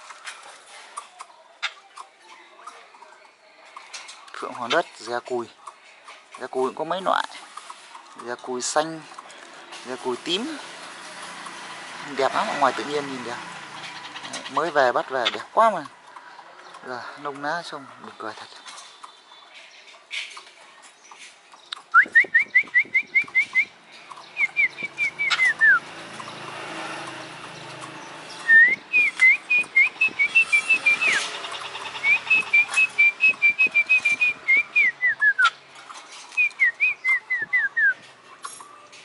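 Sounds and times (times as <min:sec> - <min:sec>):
magpie whistled calls: 0:24.4 - 0:25.8, 0:28.4 - 0:35.6.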